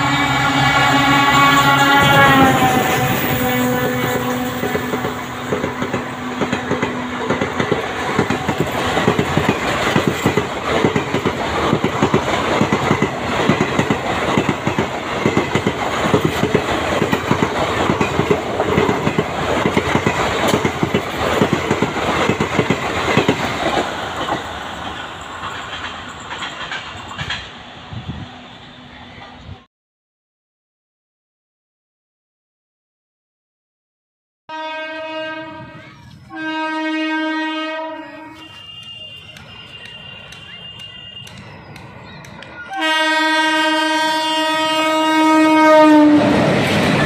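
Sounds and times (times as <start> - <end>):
train wheels clattering over rail joints: 4.6 - 27.6.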